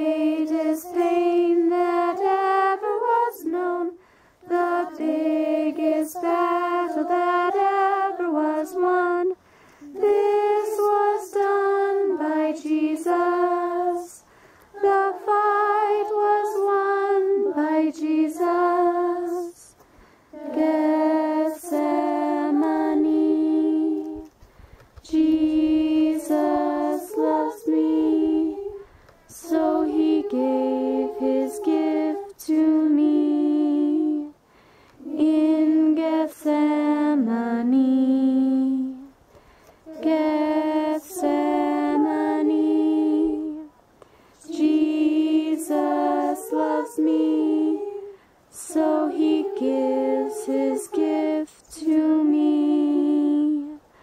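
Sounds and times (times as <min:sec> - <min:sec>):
woman singing unaccompanied: 0:00.0 - 0:24.4, 0:25.0 - 0:34.4, 0:35.0 - 0:39.2, 0:39.8 - 0:54.0.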